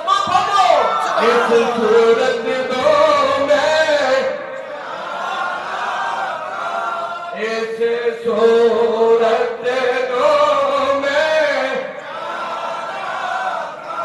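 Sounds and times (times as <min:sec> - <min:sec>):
man singing through loudspeakers: 0:00.0 - 0:04.8, 0:07.2 - 0:12.6.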